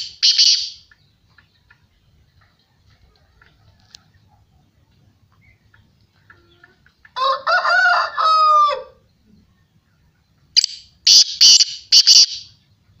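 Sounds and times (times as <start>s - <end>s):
pitched wavering bird call: 0.0s - 0.8s, 10.6s - 12.6s.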